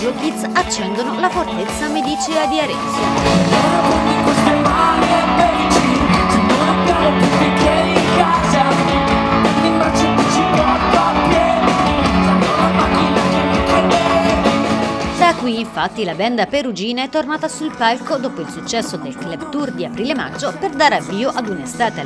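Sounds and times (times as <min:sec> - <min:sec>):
electric guitar: 0:00.0 - 0:15.5
drums: 0:00.0 - 0:15.7
bass guitar: 0:00.0 - 0:22.0
man singing: 0:03.3 - 0:15.0.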